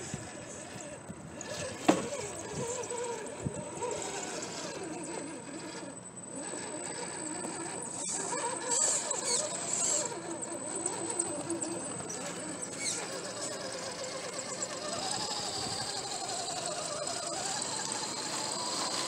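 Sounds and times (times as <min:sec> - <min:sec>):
toy truck electric motor whining: 0:00.0 - 0:19.0.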